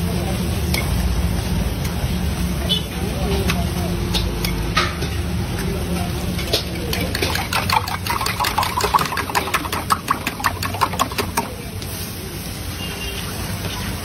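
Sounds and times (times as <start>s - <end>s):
metal clinking on a griddle: 0.6s - 1.0s, 3.3s - 7.8s.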